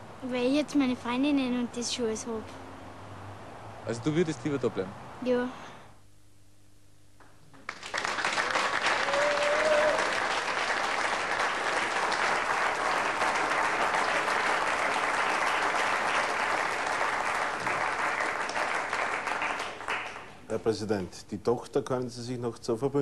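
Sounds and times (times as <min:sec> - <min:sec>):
audience applauding: 0:07.6 - 0:20.4.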